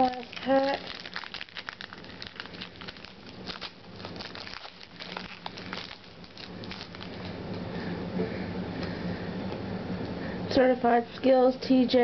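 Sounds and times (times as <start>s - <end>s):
card wrapper crinkling: 0.0s - 7.4s.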